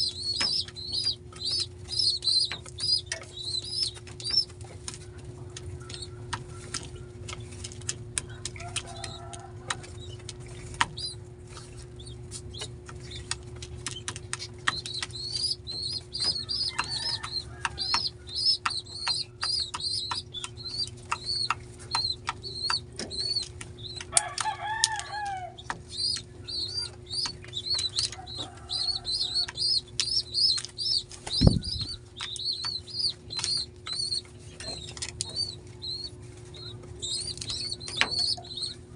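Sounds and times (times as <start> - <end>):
pigeon clicks: 0.0 - 38.9
squab high squeaks: 25.4 - 38.8
wing flapping: 29.2 - 34.0.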